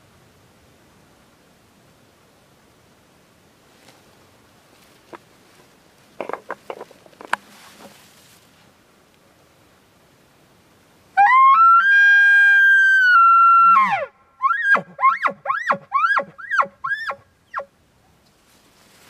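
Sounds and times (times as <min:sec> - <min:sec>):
elk bugle call whistle: 0:11.2 - 0:17.7.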